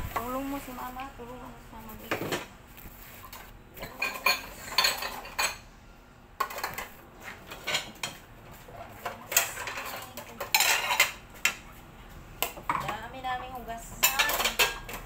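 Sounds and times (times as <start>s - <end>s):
plates and cutlery clinking: 3.2s - 5.7s, 6.4s - 11.6s, 14.0s - 15.0s.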